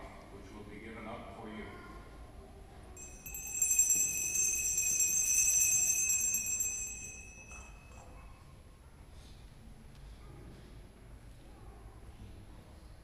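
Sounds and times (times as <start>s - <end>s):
small bells jingling: 3.0s - 8.3s.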